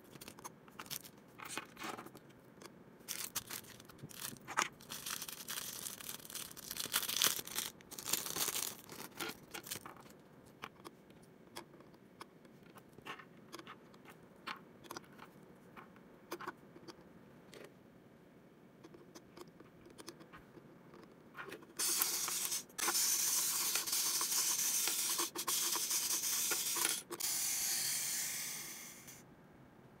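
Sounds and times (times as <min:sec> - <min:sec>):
plastic toy parts rustling: 0:00.0 - 0:02.3, 0:03.0 - 0:10.9, 0:21.4 - 0:29.2
loud steady hiss: 0:21.8 - 0:29.2.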